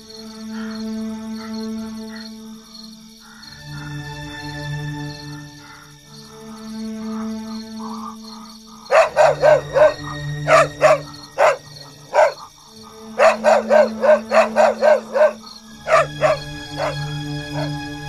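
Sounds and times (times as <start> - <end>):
background music: 0.0 - 18.0
dog barking: 8.9 - 12.5, 13.2 - 17.8.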